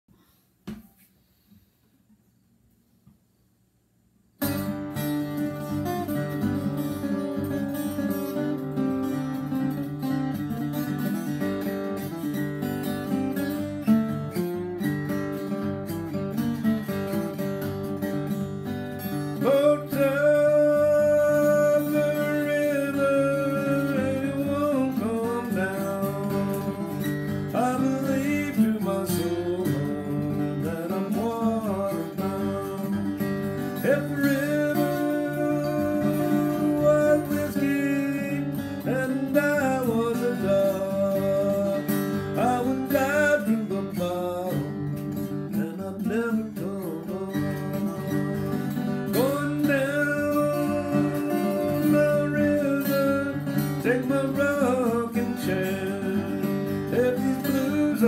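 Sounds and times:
acoustic guitar picking: 4.4 - 58.0
man singing: 19.0 - 58.0.

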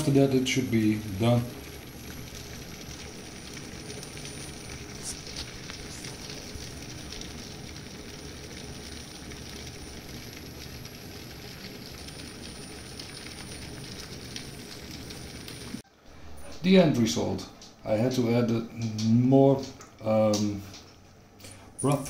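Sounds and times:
soup boiling and bubbling: 0.0 - 16.6.

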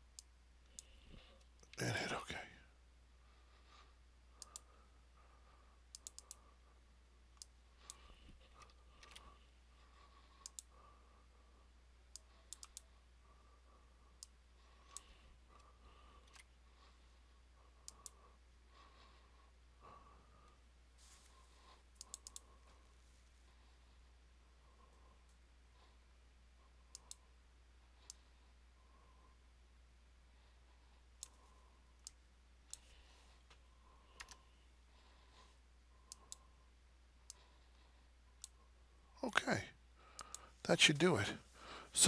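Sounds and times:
faint electrical hum: 0.0 - 42.0
computer mouse clicks: 4.4 - 4.7, 5.9 - 6.5, 7.4 - 9.4, 10.4 - 10.7, 12.1 - 12.9, 14.2 - 16.5, 17.8 - 18.2, 21.9 - 22.5, 26.9 - 27.3, 31.2 - 31.4, 32.0 - 34.5, 36.1 - 36.5, 40.2 - 40.4.

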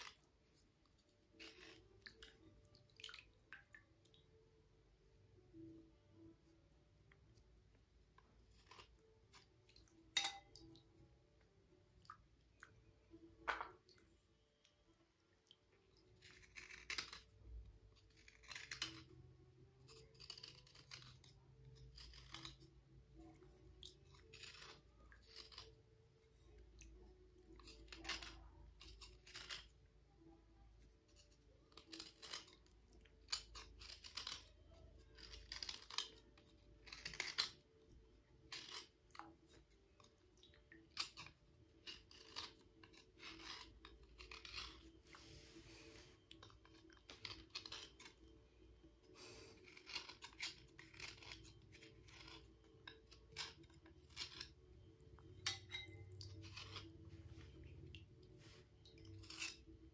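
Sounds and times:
gritty scrapes on stone: 1.3 - 2.3, 16.2 - 17.4, 18.0 - 19.1, 19.9 - 23.3, 23.9 - 25.8, 27.5 - 29.7, 31.1 - 32.6, 33.3 - 37.6, 38.5 - 38.9, 40.9 - 48.2, 49.2 - 54.6, 55.4 - 57.5, 58.4 - 59.7.

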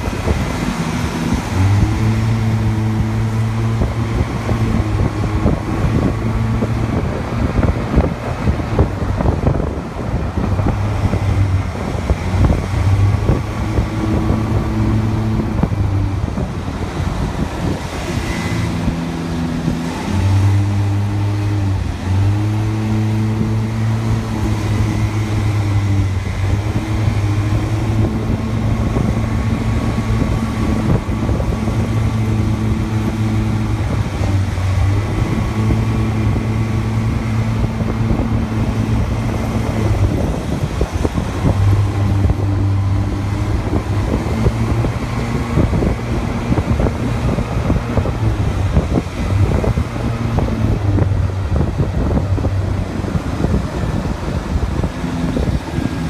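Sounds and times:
go-kart engine droning: 0.0 - 56.0
rushing wind and road noise: 0.0 - 56.0.

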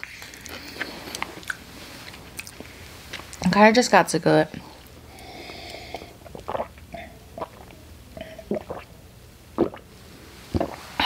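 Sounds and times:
person sipping water: 0.0 - 3.4, 4.8 - 9.0, 9.6 - 9.9, 10.5 - 11.0
gulping swallows: 5.5 - 8.9.

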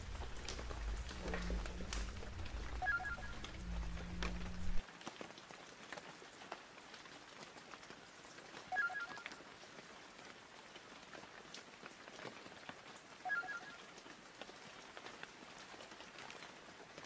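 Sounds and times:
faint crackling hiss: 0.0 - 4.8
short electronic beep: 2.8 - 3.4, 13.3 - 13.8.

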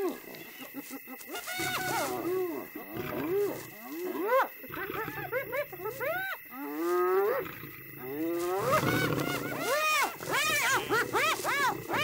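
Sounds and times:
hyenas yelping calls: 8.5 - 12.0.

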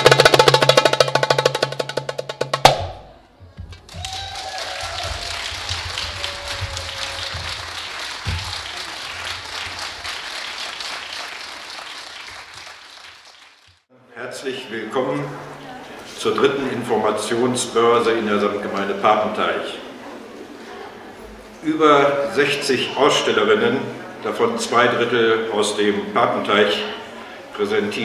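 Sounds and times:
audience applause: 3.8 - 13.8.

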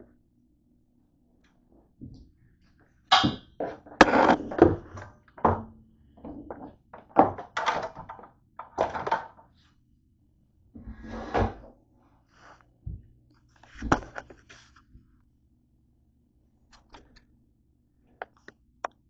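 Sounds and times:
rubbing and scraping: 3.6 - 5.1.

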